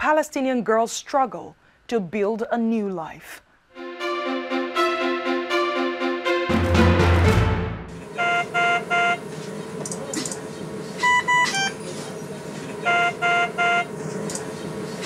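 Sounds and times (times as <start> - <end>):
patient monitor alarm beeping: 8.0 - 14.6.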